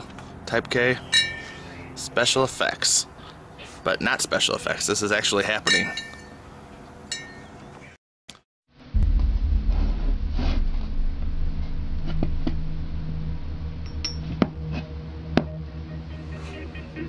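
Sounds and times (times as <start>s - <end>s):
magnet clinking on copper: 5.6s - 6.4s, 7.1s - 7.4s
steady low hum: 8.7s - 17.0s.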